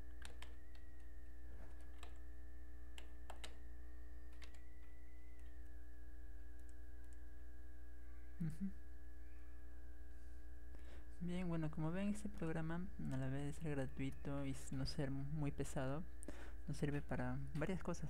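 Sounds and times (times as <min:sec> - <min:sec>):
low electrical hum: 0:00.0 - 0:18.0
keyboard key presses: 0:00.1 - 0:01.1, 0:03.0 - 0:03.6
thin high whine: 0:03.5 - 0:18.0.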